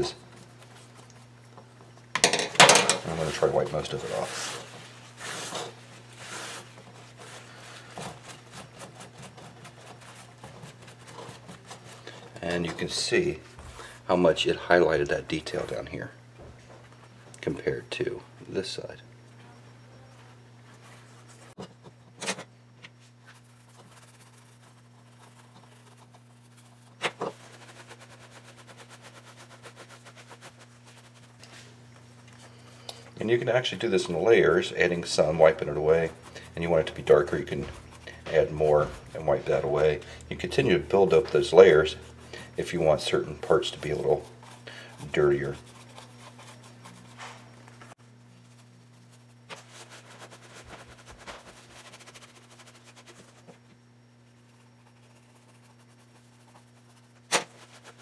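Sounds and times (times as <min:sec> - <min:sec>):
low electrical hum: 0:00.0 - 0:58.0
paper towel scrubbing foam: 0:03.1 - 0:14.0, 0:23.2 - 0:31.9, 0:33.2 - 0:47.6, 0:48.3 - 0:53.6, 0:54.2 - 0:58.0
brush rubbing strokes: 0:03.1 - 0:14.1, 0:23.0 - 0:32.6, 0:33.8 - 0:58.0.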